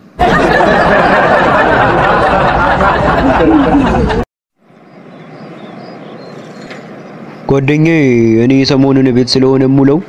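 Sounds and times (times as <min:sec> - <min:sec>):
laugh track: 0:00.2 - 0:04.3.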